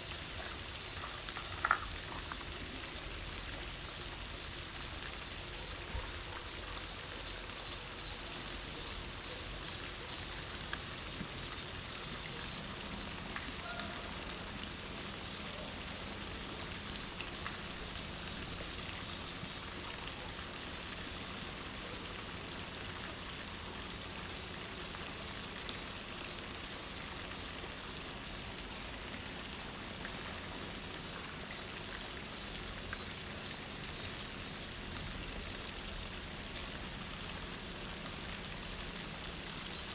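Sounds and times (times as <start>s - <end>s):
outdoor background hiss: 0.0s - 39.9s
faint ticks: 0.1s - 3.7s, 9.2s - 14.1s, 16.4s - 21.0s, 28.5s - 39.9s.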